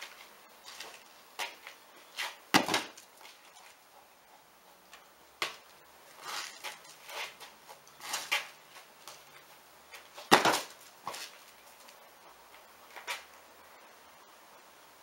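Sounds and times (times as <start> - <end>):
ball knocks and scuffs: 0.0 - 3.5, 9.9 - 11.4.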